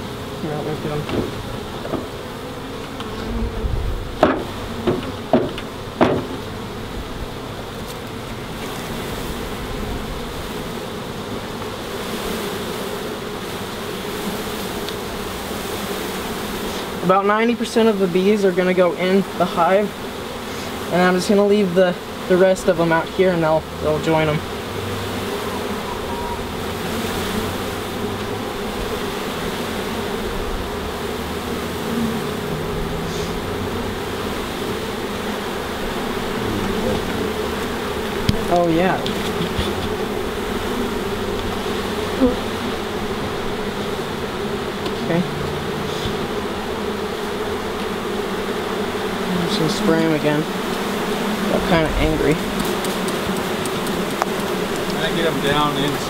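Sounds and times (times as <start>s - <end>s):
honeybees buzzing: 0.0s - 56.0s
knocks on wooden box: 1.0s - 2.1s, 4.2s - 6.4s.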